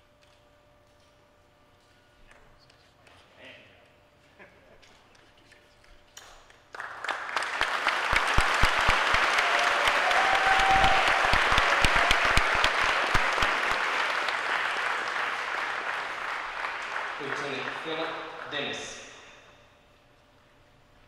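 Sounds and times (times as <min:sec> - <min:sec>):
audience applause: 0:06.7 - 0:19.0.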